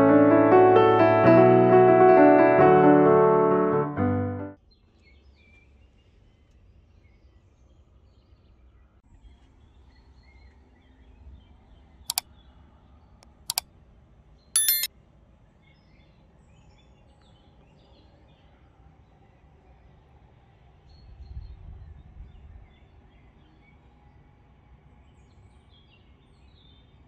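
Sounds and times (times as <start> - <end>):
faint outdoor ambience: 4.5 - 27.0
bird chirps: 14.6 - 14.9
mouse clicks: 14.6 - 14.9
short bell chime: 14.6 - 14.9.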